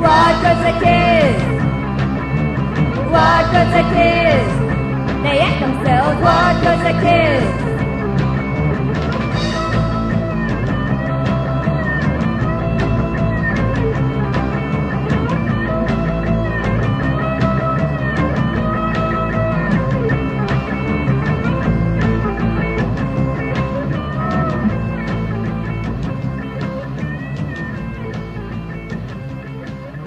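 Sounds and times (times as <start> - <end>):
bending lead guitar notes: 0.0 - 30.0
drums steady beat: 0.0 - 30.0
rock band playing: 0.0 - 30.0.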